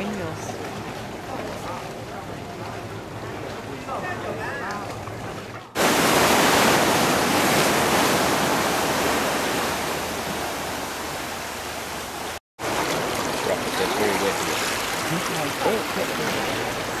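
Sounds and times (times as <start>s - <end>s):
waves breaking on stony shore: 5.7s - 17.0s.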